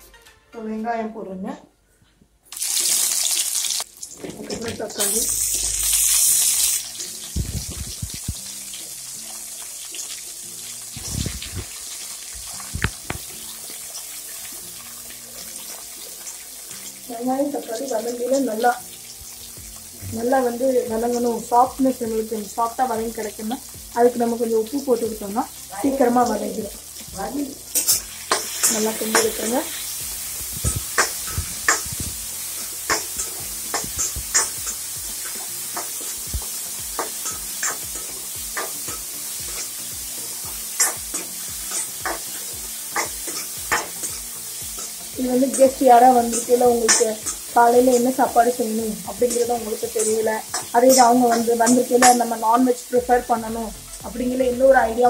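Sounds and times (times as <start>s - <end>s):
vegetables sizzling in hot oil: 2.5s - 55.0s
oil popping: 12.3s - 13.8s
spatula scraping metal pan: 27.7s - 36.3s.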